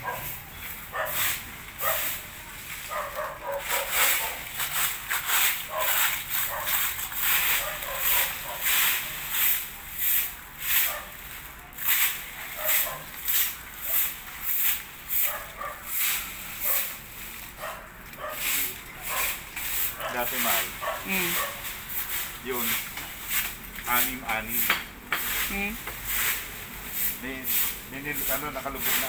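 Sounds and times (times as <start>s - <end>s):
broom sweeping leaves on concrete: 0.0s - 29.0s.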